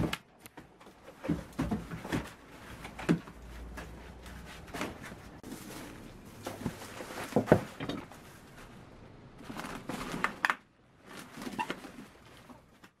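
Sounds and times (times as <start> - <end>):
broom straw rustling: 4.0 - 9.9.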